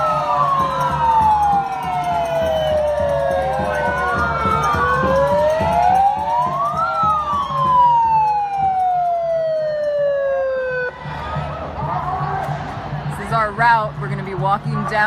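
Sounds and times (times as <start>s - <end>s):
police sirens wailing: 0.0s - 11.4s.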